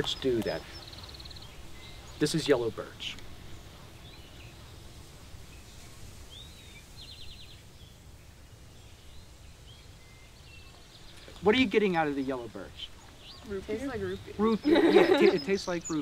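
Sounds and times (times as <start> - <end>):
songbirds chirping: 0.0 - 16.0.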